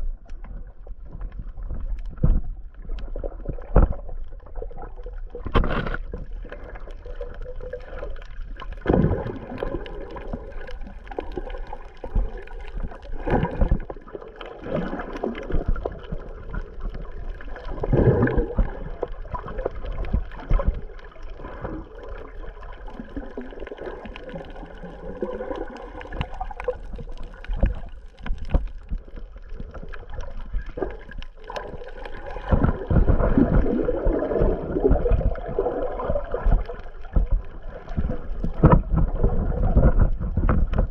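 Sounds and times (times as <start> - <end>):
underwater water sloshing: 0.0 - 40.9
low underwater thumps: 25.9 - 40.9.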